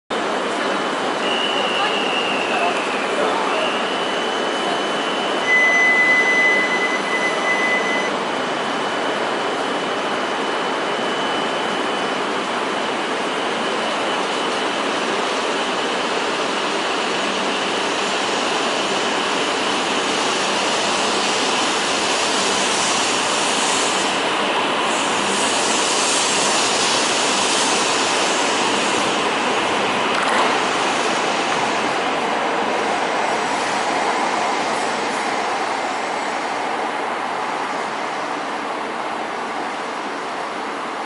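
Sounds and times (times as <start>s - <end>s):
train moving slowly: 0.1s - 41.0s.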